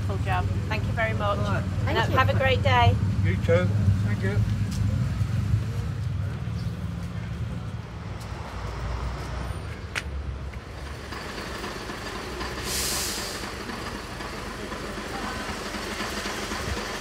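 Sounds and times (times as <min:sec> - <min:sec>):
street noise: 0:00.0 - 0:17.0
vehicle engine rumbling: 0:00.0 - 0:17.0
short burst of hiss: 0:12.6 - 0:13.5.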